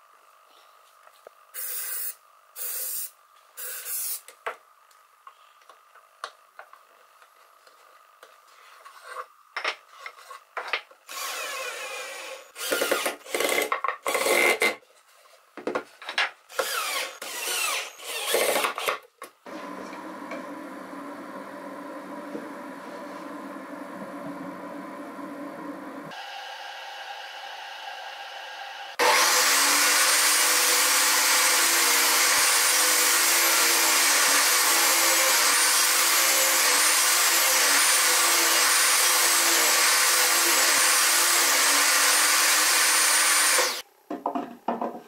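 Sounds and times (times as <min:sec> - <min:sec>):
steady hum: 0:19.5 - 0:29.0.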